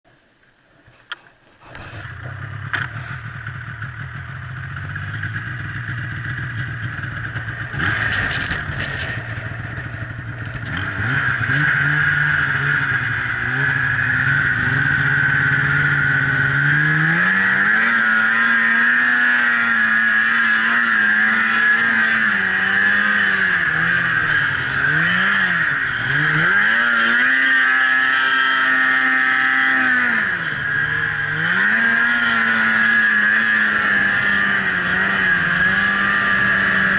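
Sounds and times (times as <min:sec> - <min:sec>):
snowmobile engine revving: 0:01.6 - 0:36.9
steady high whine: 0:29.7 - 0:36.9.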